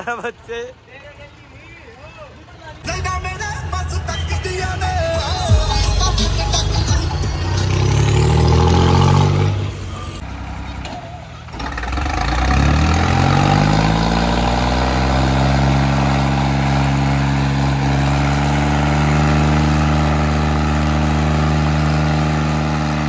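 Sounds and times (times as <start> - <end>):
tractor diesel engine revving: 0.0 - 23.0.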